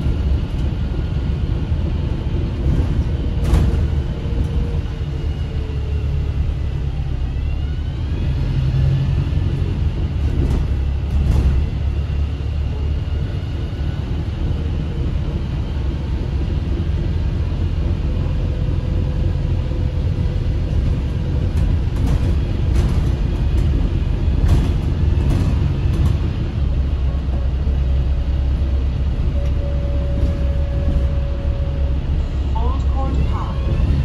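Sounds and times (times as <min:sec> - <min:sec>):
rattles from bus fittings: 0:00.0 - 0:05.2, 0:09.5 - 0:12.5, 0:20.5 - 0:31.2
bus engine and road drone: 0:00.0 - 0:34.0.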